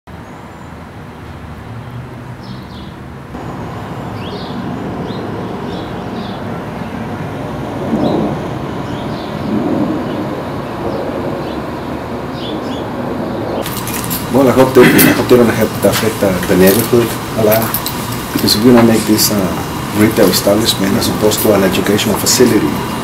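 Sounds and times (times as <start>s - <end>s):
street traffic with cars passing: 0.1s - 23.0s
high bird chirps: 2.4s - 7.0s, 8.0s - 13.9s.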